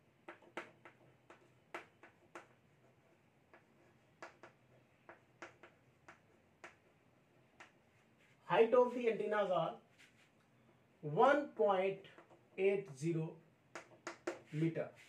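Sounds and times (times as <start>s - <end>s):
chalk tapping on blackboard: 0.0s - 8.3s, 12.0s - 13.0s, 13.7s - 15.0s.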